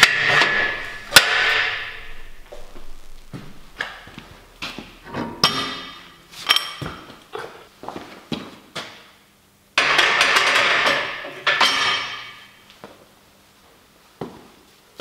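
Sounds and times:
barbell clanking on steel hooks: 5.1 - 7.1, 9.8 - 12.6.

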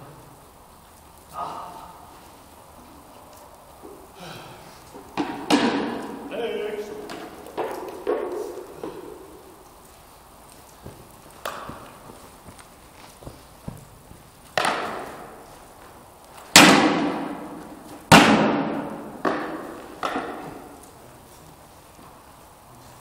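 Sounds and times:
weapons striking shields: 5.2 - 9.3, 16.5 - 20.8.

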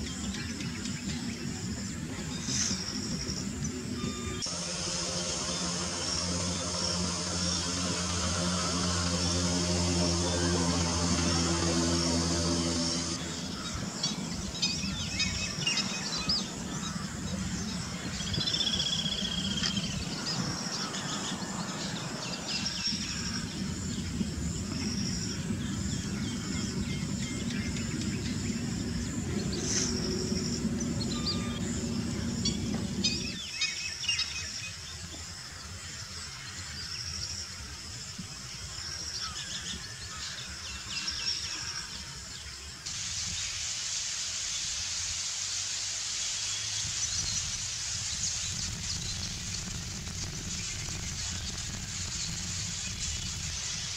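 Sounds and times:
grebes trilled calls: 0.0 - 34.2.

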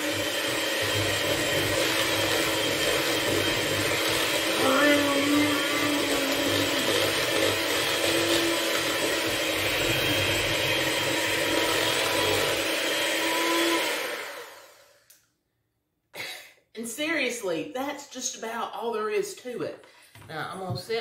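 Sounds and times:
electric hand mixer whipping: 0.0 - 15.1.

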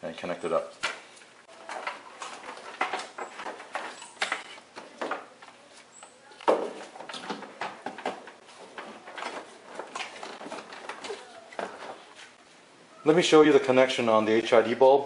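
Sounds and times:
wiring clicks scrapes and rustles: 1.6 - 12.4.

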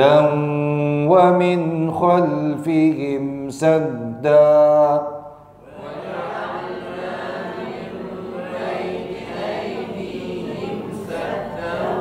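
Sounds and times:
many voices chanting in unison: 5.6 - 12.0.

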